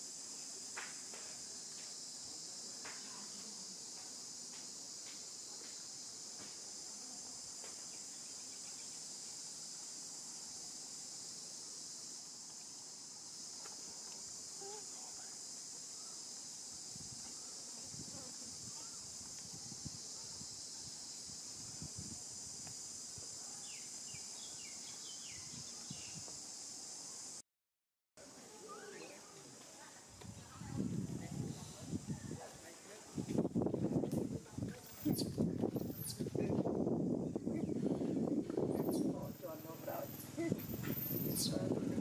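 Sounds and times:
insects buzzing: 0:00.0 - 0:27.4, 0:28.2 - 0:42.0.

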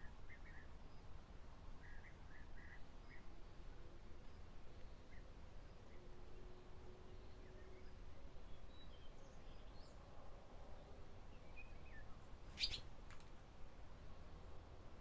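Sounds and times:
faint bird chirps: 0:01.8 - 0:03.4, 0:10.8 - 0:13.0.

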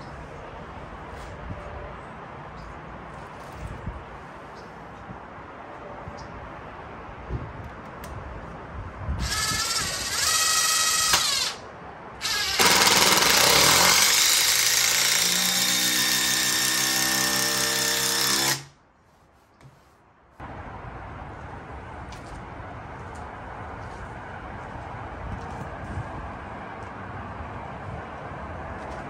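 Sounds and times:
cordless driver sinking screw: 0:09.2 - 0:11.6, 0:12.2 - 0:18.7.

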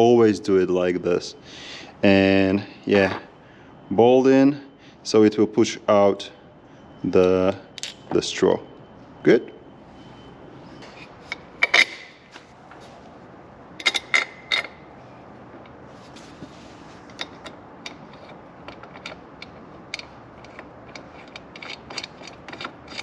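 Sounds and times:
metal parts clicking and clinking: 0:03.0 - 0:03.3, 0:07.8 - 0:08.2, 0:11.3 - 0:12.2, 0:13.8 - 0:14.8, 0:17.1 - 0:23.0.

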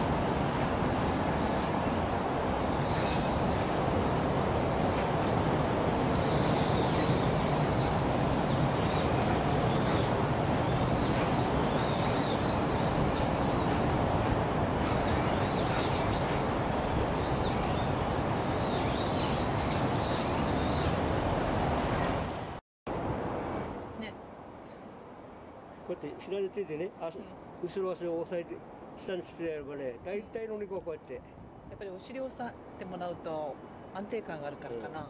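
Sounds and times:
small birds chirping: 0:00.0 - 0:22.6.

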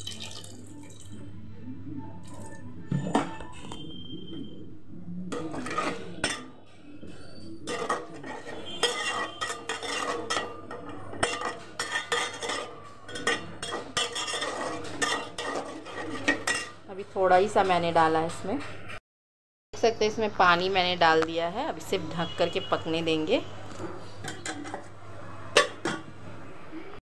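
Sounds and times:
ladle scraping metal pot: 0:05.3 - 0:16.8, 0:23.7 - 0:26.1.

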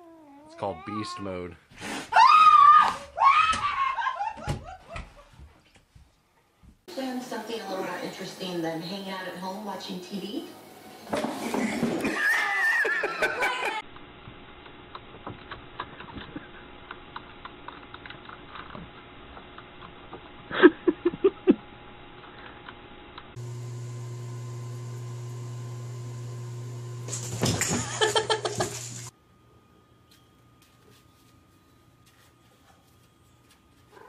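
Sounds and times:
burst of laughter: 0:11.4 - 0:13.8, 0:20.5 - 0:21.6, 0:27.6 - 0:28.8.

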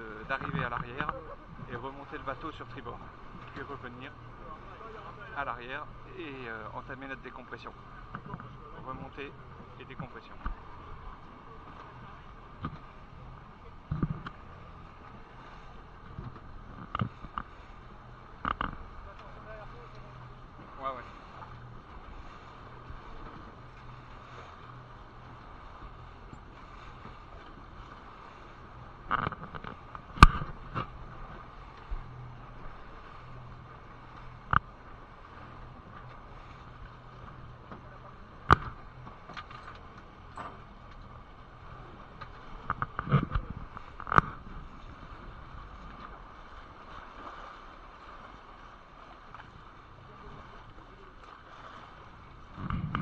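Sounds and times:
outboard motors running: 0:00.0 - 0:53.0
wind and water noise: 0:00.0 - 0:53.0
boat hull thumps: 0:13.6 - 0:14.6, 0:28.9 - 0:33.4, 0:37.1 - 0:46.2, 0:52.5 - 0:53.0.

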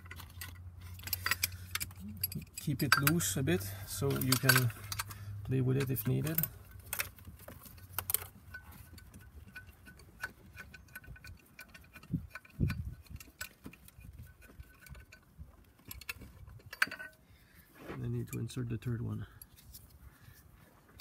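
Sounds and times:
ratchet wrench clicking: 0:00.0 - 0:05.2.

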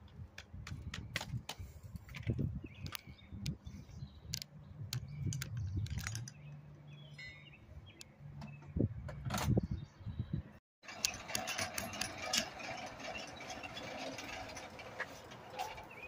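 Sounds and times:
bird chirps: 0:02.6 - 0:08.8.

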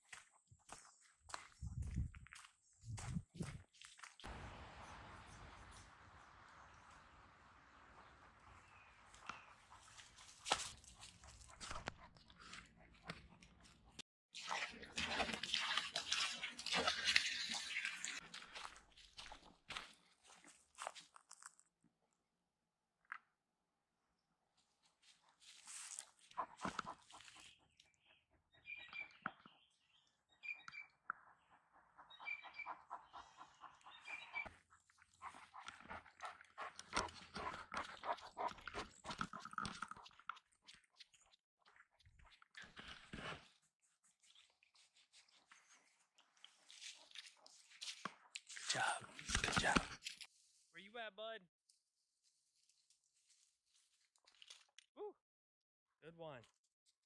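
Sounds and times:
footsteps crunching on sandy trail: 0:00.0 - 0:04.4, 0:18.2 - 0:21.5, 0:25.0 - 0:27.5
water splashing: 0:14.4 - 0:18.2
dog lapping water: 0:14.4 - 0:18.7, 0:35.2 - 0:40.8
dog panting: 0:26.3 - 0:27.7, 0:31.4 - 0:34.4, 0:35.0 - 0:40.0.

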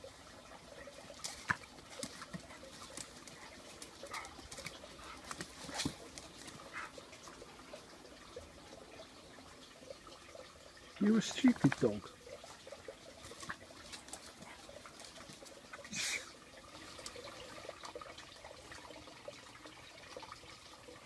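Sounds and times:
dogs snorting: 0:01.3 - 0:07.0.

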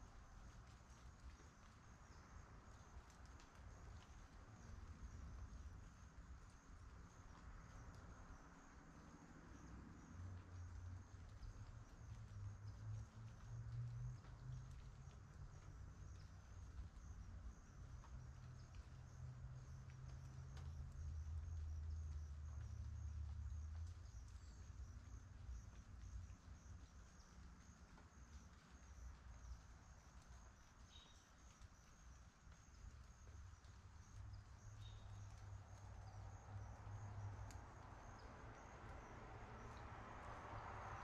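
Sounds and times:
insects chirping: 0:00.0 - 0:41.0
distant traffic rumble: 0:00.1 - 0:41.0
car approaching tyre noise: 0:34.1 - 0:41.0.

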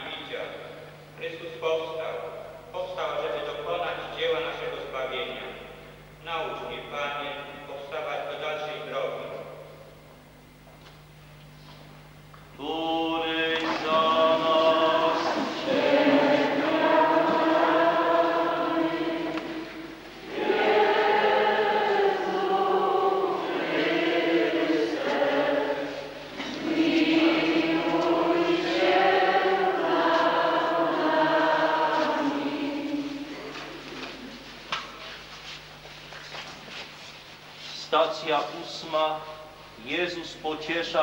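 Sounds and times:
congregation singing a hymn: 0:12.6 - 0:34.6.

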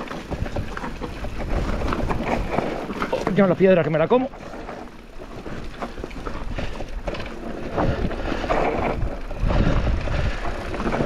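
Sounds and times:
bike rattling and knocking: 0:00.0 - 0:11.0
tyres rolling over stones: 0:00.0 - 0:11.0.

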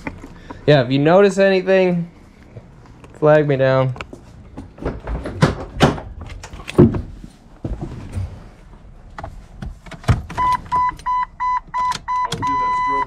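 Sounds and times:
knocks and thumps: 0:04.5 - 0:08.4
car warning chime beeps: 0:10.4 - 0:13.0.

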